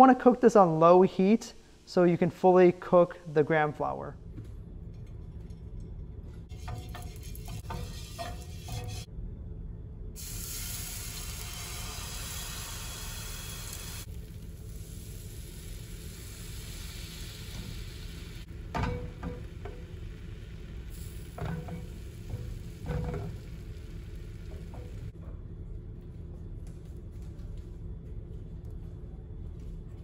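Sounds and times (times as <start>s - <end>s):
batter sizzling on hot pan: 10.2s - 25.1s.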